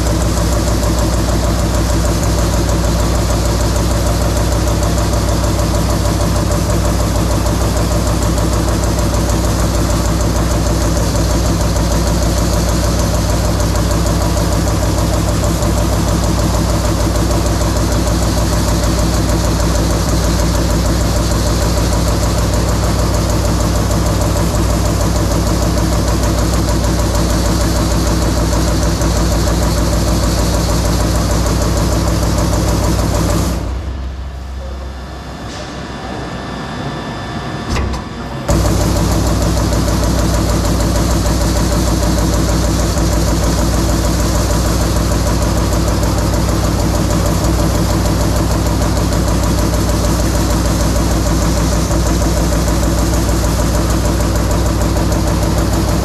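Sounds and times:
machine hum: 0.0s - 56.0s
punch press hammering: 37.7s - 56.0s.

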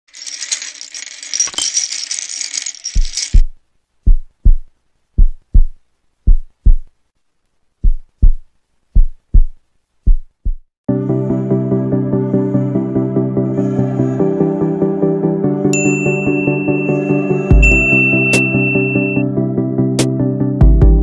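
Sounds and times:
plastic bricks clattering: 0.1s - 3.5s
deep thumps in pairs: 4.0s - 6.9s, 7.8s - 10.7s.

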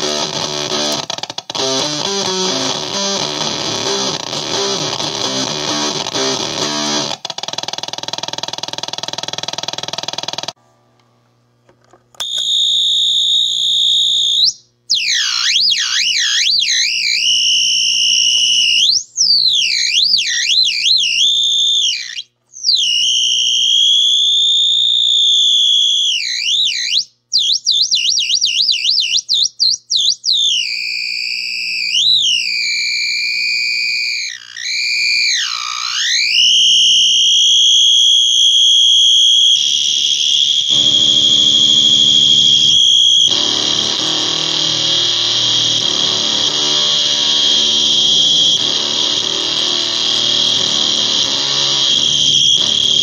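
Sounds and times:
fuzzed guitar chord: 0.0s - 7.2s, 40.7s - 53.0s
shrill warbling fuzz squeal: 0.0s - 7.3s, 12.2s - 26.9s, 29.9s - 53.0s.

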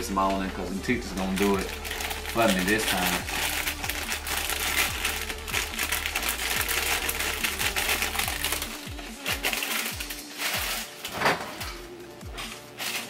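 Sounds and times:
plastic bag crinkling: 1.0s - 13.0s.

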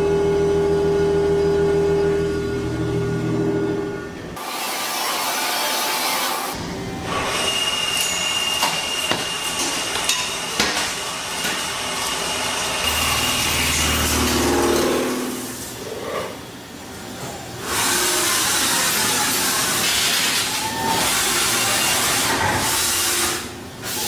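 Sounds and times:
low machine hum: 0.0s - 4.4s
milling machine high whine: 0.0s - 15.8s.

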